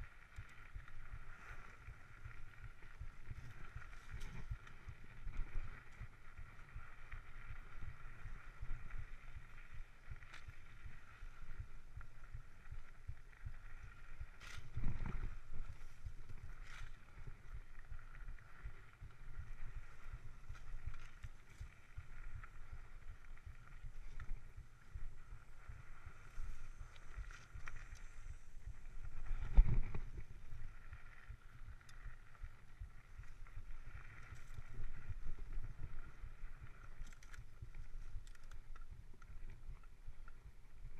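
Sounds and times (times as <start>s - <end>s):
bike tyre and frame rumble: 0.0s - 40.9s
small clicks and rattles: 29.3s - 40.4s.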